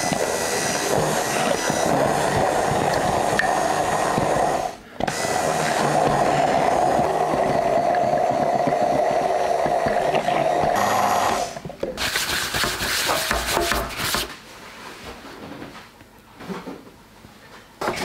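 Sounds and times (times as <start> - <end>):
stick blender running in glass jar: 0.0 - 11.6.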